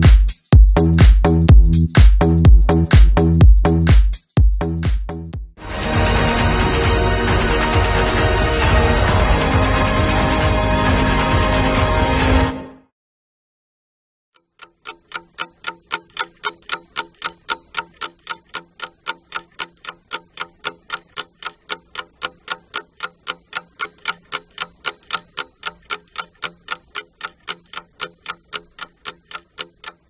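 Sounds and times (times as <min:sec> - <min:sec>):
clock ticking: 0:00.0 - 0:05.6, 0:14.4 - 0:30.0.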